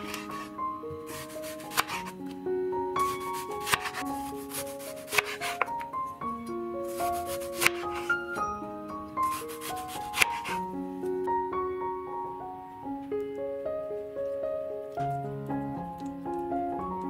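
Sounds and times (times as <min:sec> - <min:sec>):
knife slicing onion on board: 0:00.0 - 0:00.5, 0:01.1 - 0:02.1, 0:03.1 - 0:05.8, 0:06.9 - 0:08.2, 0:09.2 - 0:10.6
light piano music: 0:00.0 - 0:17.0.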